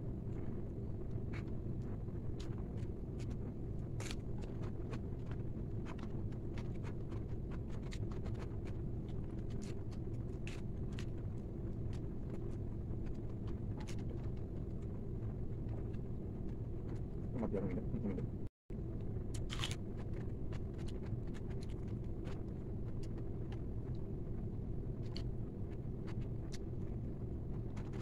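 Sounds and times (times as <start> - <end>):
low background rumble: 0.0 - 28.0
clicks and smacks of eating: 1.4 - 14.5.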